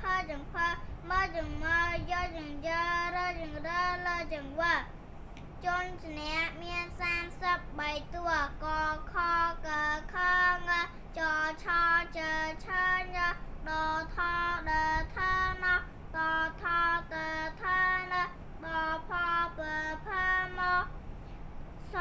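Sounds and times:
girl chanting syllables: 0.0 - 4.9.

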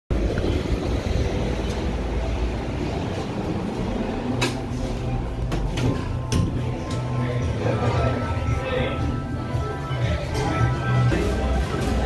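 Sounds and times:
traffic rumble: 0.1 - 12.0.

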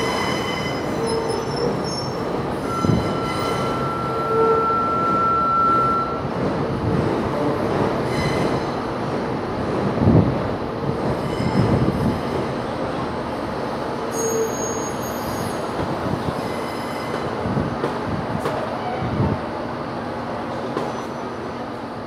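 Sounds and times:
high wheel squeal: 0.0 - 6.2, 14.1 - 15.7
subway train rumbling: 0.0 - 22.0.

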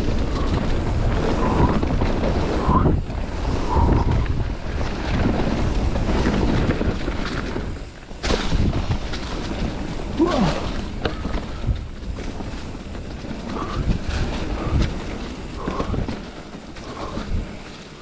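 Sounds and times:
bike rattling on dirt trail: 0.0 - 18.0
wind on microphone: 0.0 - 18.0
bike landing knock: 8.2 - 9.5.

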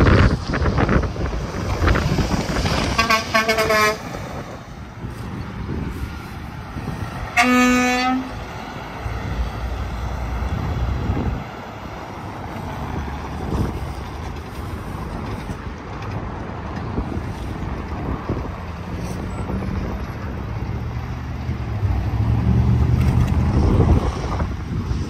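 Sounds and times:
highway traffic rumble: 0.0 - 25.0
truck air horn blast: 2.9 - 4.2, 7.3 - 8.4.

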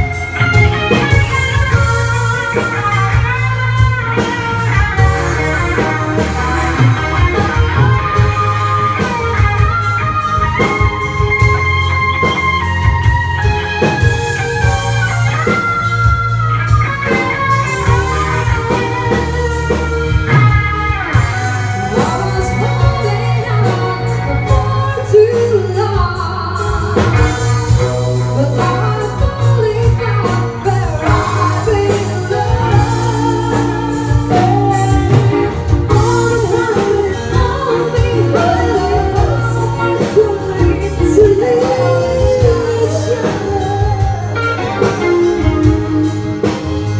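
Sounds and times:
live pop-rock band: 0.0 - 46.9
person singing: 17.0 - 46.9.

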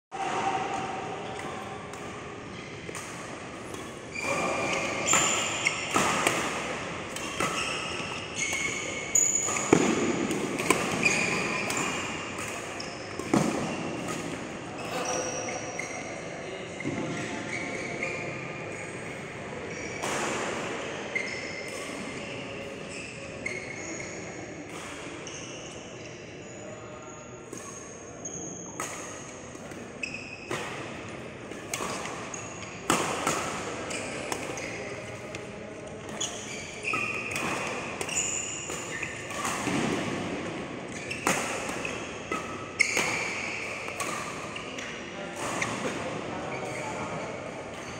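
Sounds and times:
shoes squeaking on court: 1.2 - 18.5, 21.1 - 24.4, 29.6 - 47.9
rackets striking shuttlecock: 2.8 - 14.6, 36.0 - 46.8.

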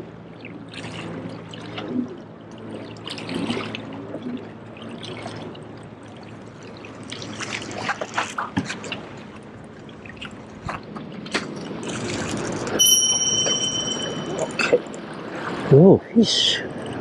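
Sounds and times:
small waves lapping on rocks: 0.8 - 12.8.

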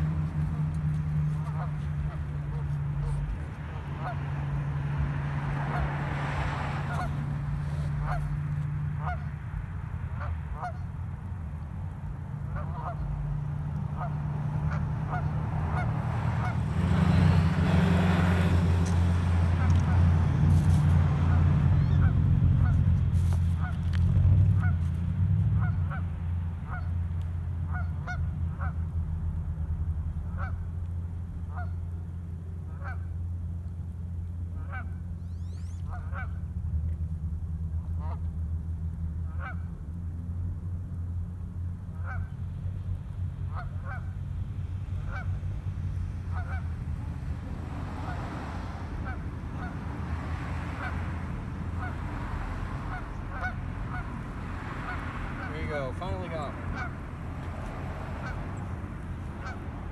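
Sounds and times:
geese honking: 0.0 - 9.4, 10.1 - 11.0, 12.4 - 20.2, 21.2 - 22.8, 23.5 - 24.0, 24.6 - 24.9, 25.5 - 27.0, 27.6 - 28.9, 30.3 - 30.8, 31.5 - 31.9, 32.6 - 33.2, 34.5 - 36.5, 37.8 - 38.3, 39.3 - 39.7, 41.9 - 42.5, 43.4 - 44.3, 44.9 - 59.9.

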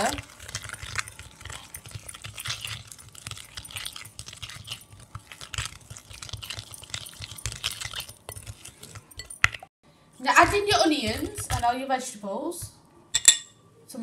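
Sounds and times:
spoon scraping glass bowl: 0.0 - 9.7, 10.4 - 11.7.

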